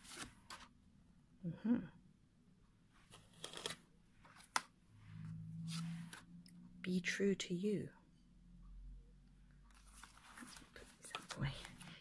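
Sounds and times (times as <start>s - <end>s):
cards rustling: 0.0s - 0.7s, 3.0s - 4.7s, 9.7s - 12.0s
low hum: 4.9s - 7.1s.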